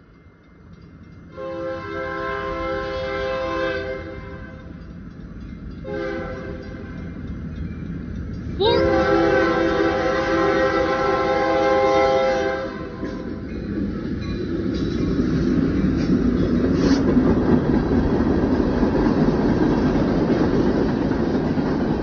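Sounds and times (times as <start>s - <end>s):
train rumbling: 0.0s - 22.0s
locomotive air horn blasts: 1.4s - 4.7s, 5.8s - 6.9s, 8.7s - 13.3s.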